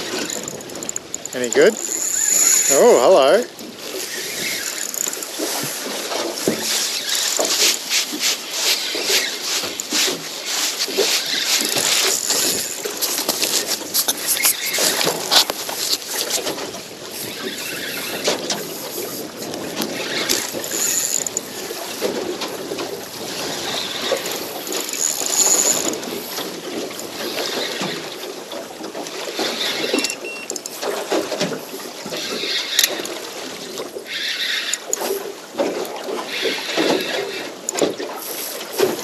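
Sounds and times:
fishing reel drag zings: 0:00.0 - 0:05.4, 0:06.7 - 0:07.9, 0:11.2 - 0:16.4, 0:19.9 - 0:21.6, 0:24.0 - 0:26.2
water slapping against boat hull: 0:03.5 - 0:17.2, 0:34.8 - 0:39.0.

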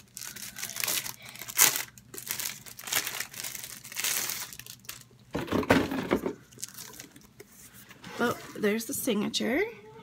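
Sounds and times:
packaging crinkling and rustling: 0:00.0 - 0:07.5.

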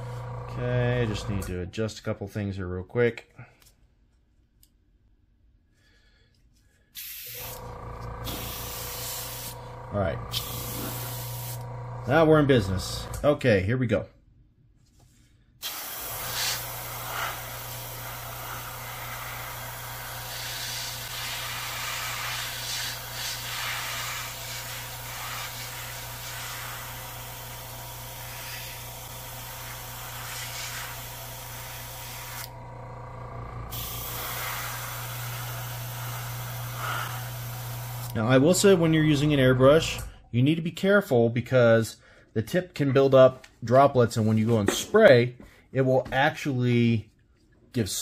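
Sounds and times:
airbrush air hiss: 0:07.0 - 0:07.6, 0:08.2 - 0:09.6, 0:10.3 - 0:11.6, 0:15.6 - 0:27.5, 0:28.2 - 0:29.0, 0:29.6 - 0:32.5, 0:33.7 - 0:38.1.

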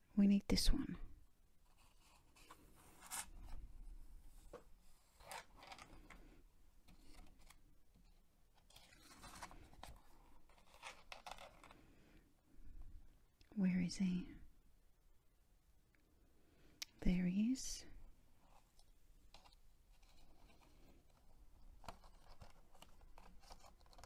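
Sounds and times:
paper pages rustling: 0:01.7 - 0:03.6, 0:04.3 - 0:06.3, 0:06.9 - 0:11.8, 0:18.4 - 0:24.0.

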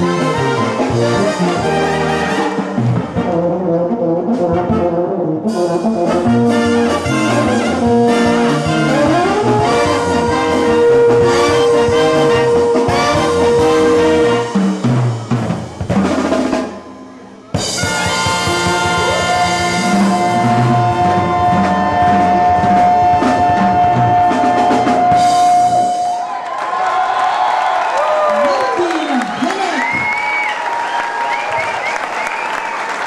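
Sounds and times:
drum kit: 0:00.0 - 0:26.3
brass band playing: 0:00.0 - 0:26.5.

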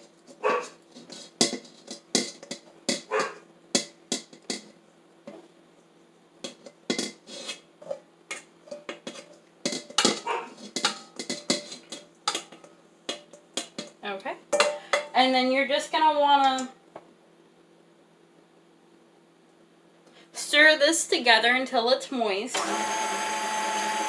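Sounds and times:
spatula scraping metal bowl: 0:00.0 - 0:03.4, 0:06.4 - 0:12.5.

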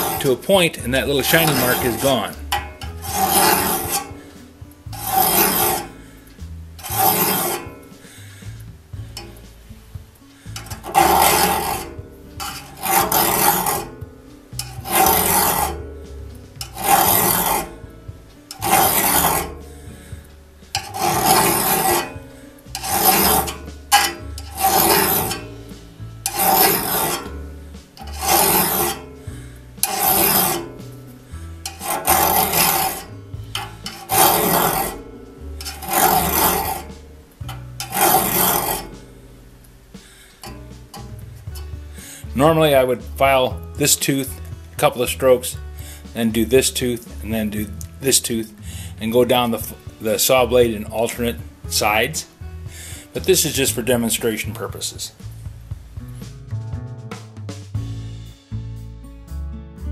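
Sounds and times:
file rasping on saw tooth: 0:00.0 - 0:09.8, 0:10.4 - 0:39.2, 0:40.0 - 0:42.6.

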